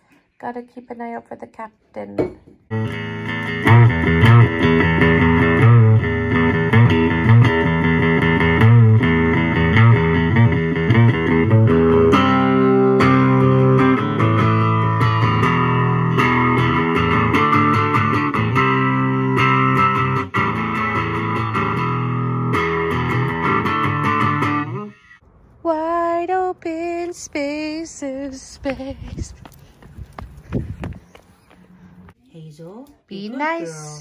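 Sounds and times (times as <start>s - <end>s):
electric guitar through amplifier: 2.7s - 28.5s.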